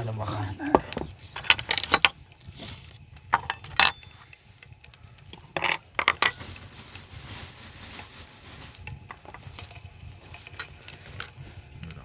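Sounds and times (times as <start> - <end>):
soft rustling: 6.3 - 11.7.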